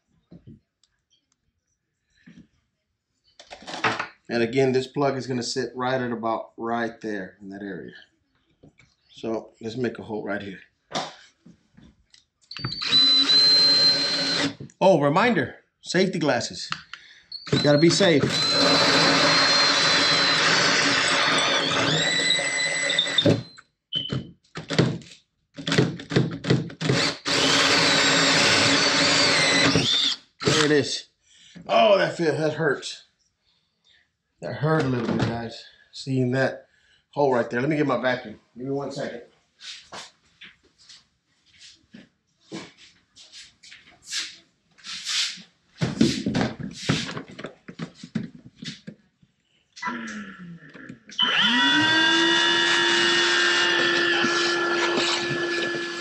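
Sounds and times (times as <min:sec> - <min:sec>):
power drill with hole saw: 0:12.6 - 0:14.7, 0:17.3 - 0:23.6, 0:25.6 - 0:30.8, 0:51.1 - 0:56.0.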